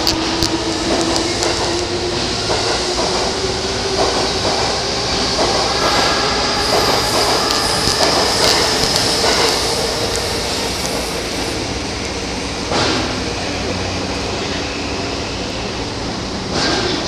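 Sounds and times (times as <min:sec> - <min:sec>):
electric train motor whine: 0:00.0 - 0:12.5
train running rumble: 0:00.0 - 0:17.0.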